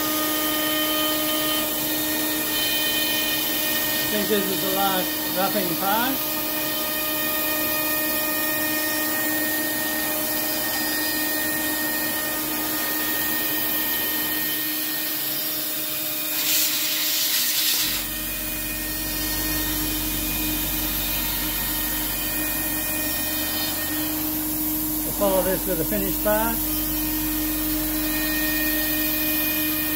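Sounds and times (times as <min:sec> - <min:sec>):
router spindle whine cutting wood: 0:00.0 - 0:29.9
loud air hiss: 0:16.2 - 0:18.2
low hum: 0:17.9 - 0:26.0.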